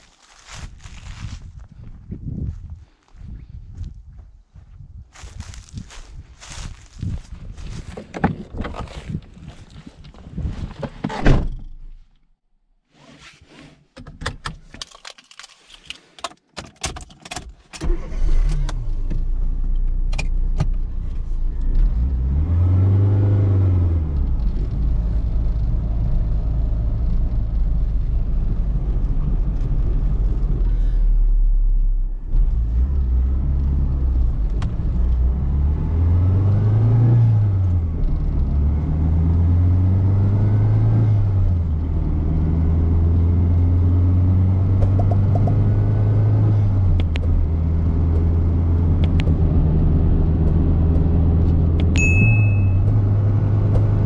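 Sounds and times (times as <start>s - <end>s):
clicks and rattles: 14.0s - 17.6s
car engine starting and idling: 17.7s - 54.0s.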